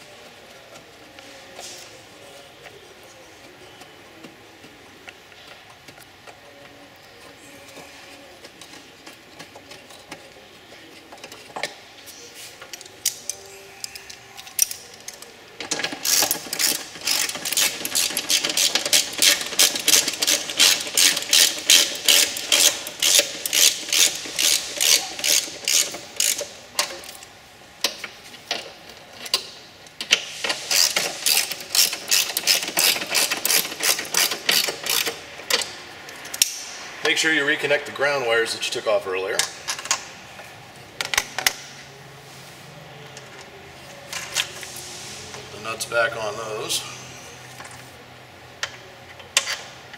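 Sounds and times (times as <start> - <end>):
ratchet wrench clicking: 15.9 - 27.2, 30.6 - 35.7.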